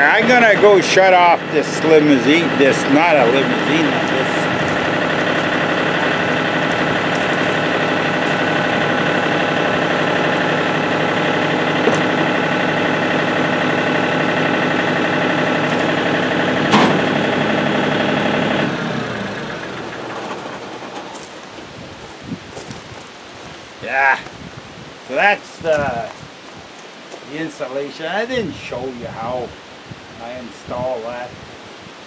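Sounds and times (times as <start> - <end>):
tractor engine idling: 0.0 - 23.8.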